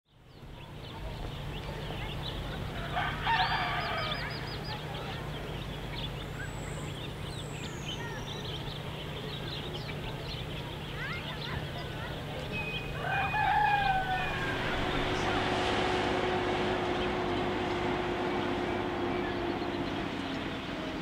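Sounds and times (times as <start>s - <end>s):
small birds chirping: 0.1s - 15.7s, 16.7s - 21.0s
steady low hum: 0.3s - 21.0s
rooster crowing: 2.8s - 4.5s, 13.0s - 15.5s.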